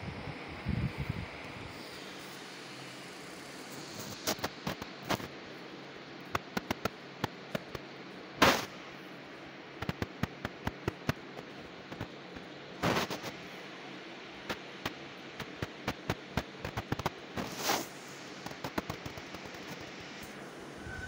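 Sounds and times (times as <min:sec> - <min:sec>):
short noisy bursts: 0:08.4 - 0:08.8.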